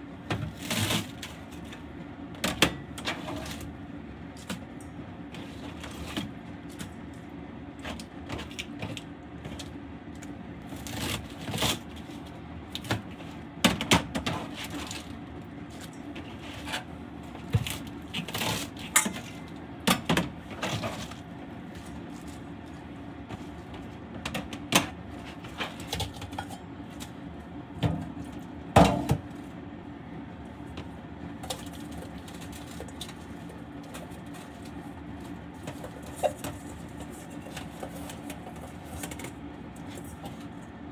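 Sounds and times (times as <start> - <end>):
steady low hum: 0.0 - 40.9
knife chopping cabbage: 10.6 - 12.0.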